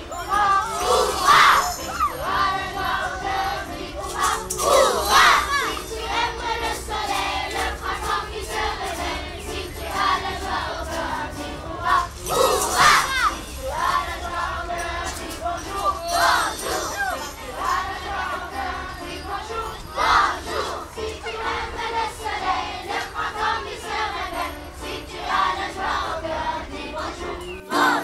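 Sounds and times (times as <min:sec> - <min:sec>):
triangles and hand percussion: 0:00.0 - 0:21.3
children singing together: 0:00.0 - 0:28.0.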